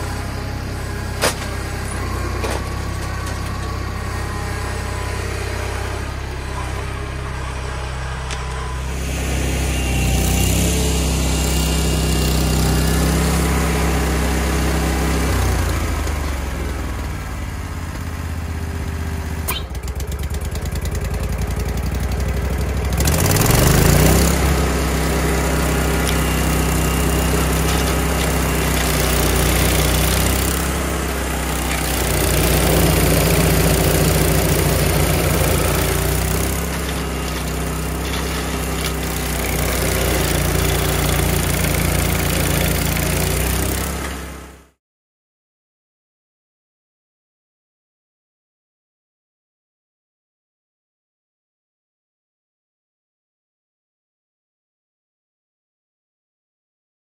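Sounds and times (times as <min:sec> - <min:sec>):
stump grinder grinding stump: 0:00.0 - 0:44.7.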